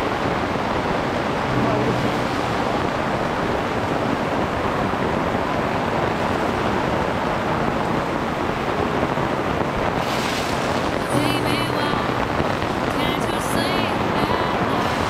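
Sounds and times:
heavy rain on a tarp: 0.0 - 15.0
rain on gravel: 2.2 - 12.9.

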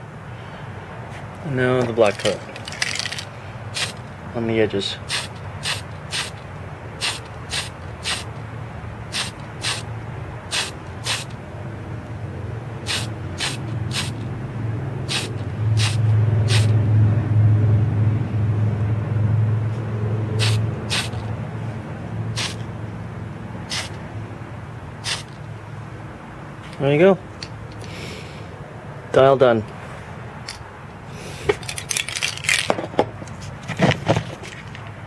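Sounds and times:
paint spray hissing bursts: 3.7 - 4.0, 5.0 - 6.4, 7.0 - 8.4, 9.1 - 11.4, 12.8 - 14.3, 15.0 - 16.8, 20.4 - 21.3, 22.3 - 22.6, 23.6 - 24.0, 25.0 - 25.4.

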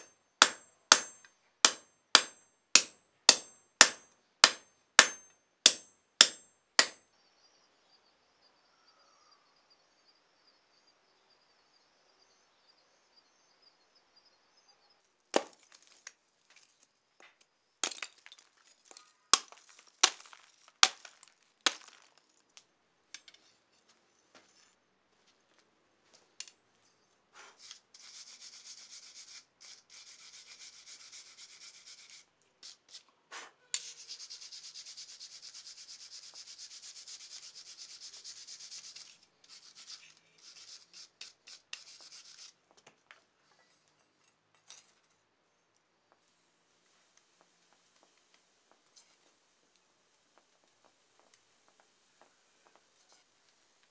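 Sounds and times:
charcoal cracking under chopping: 0.0 - 7.0, 15.3 - 16.2, 17.8 - 22.6
wire brush scrubbing steel: 27.6 - 33.0, 33.8 - 42.6.

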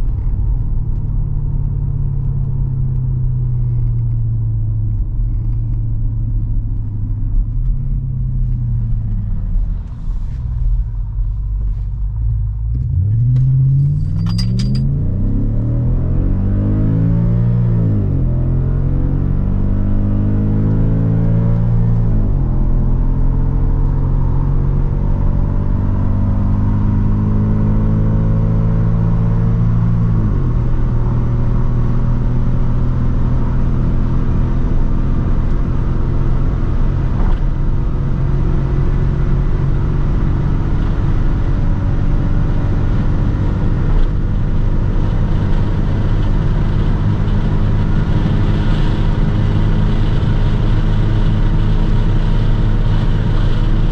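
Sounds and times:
car engine at full throttle: 0.0 - 53.9
road and wind noise: 0.0 - 53.9.

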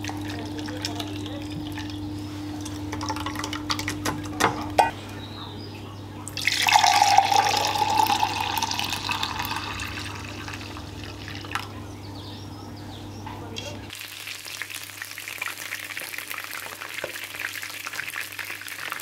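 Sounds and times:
juice splashing into a jug: 0.0 - 4.4, 6.3 - 11.7, 13.9 - 19.0.

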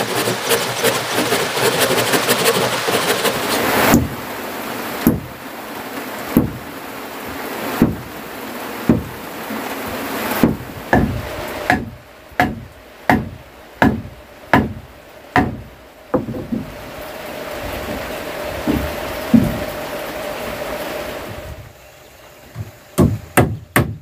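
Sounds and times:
steady hiss: 0.0 - 24.0
machete chopping wood: 3.8 - 4.2, 7.8 - 8.0, 8.9 - 9.1, 10.4 - 14.8, 15.4 - 16.5
knocks on wooden plank panel: 3.9 - 4.2, 5.0 - 5.3, 6.4 - 6.6, 7.8 - 8.1, 8.9 - 9.2, 9.9 - 16.8, 18.6 - 19.7, 22.5 - 24.0.

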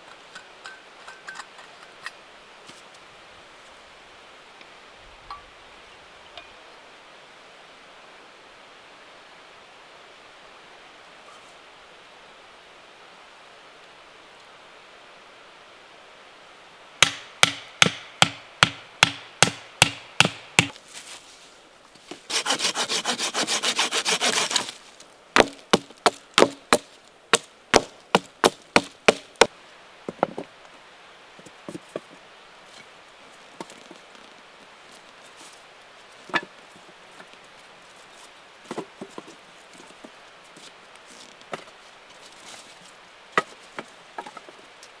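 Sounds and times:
wooden stakes knocked into ground: 17.0 - 20.8, 25.4 - 29.5
folding saw sawing: 22.3 - 24.8.

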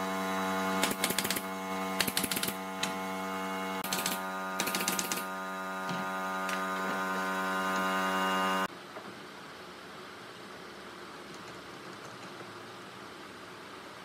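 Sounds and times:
nail gun firing nails: 0.8 - 3.0, 3.8 - 5.4.

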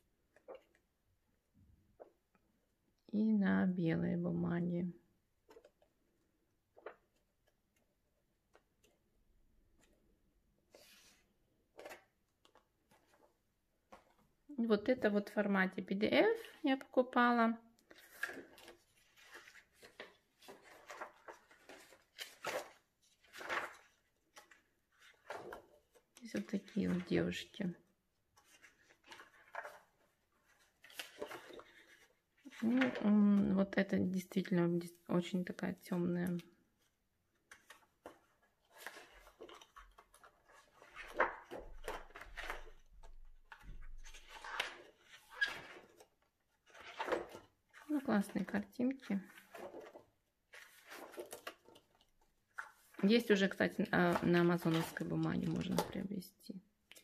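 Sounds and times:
paper pages turning: 10.7 - 13.3, 17.8 - 27.6, 28.3 - 33.2, 37.3 - 48.5, 49.2 - 56.1.

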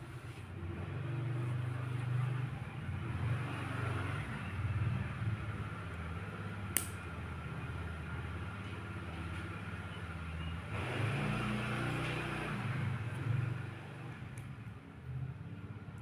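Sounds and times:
vehicle engine rumble: 0.0 - 16.0
sharp click: 6.8 - 7.0.

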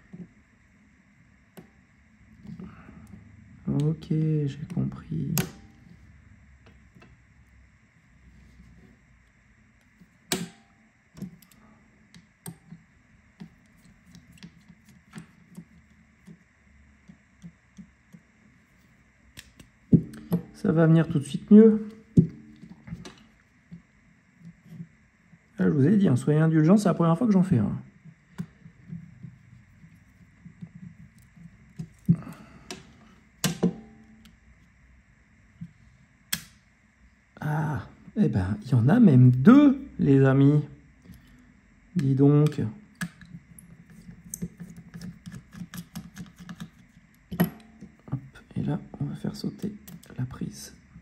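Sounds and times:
hand tools tapping phone parts: 43.0 - 48.0.

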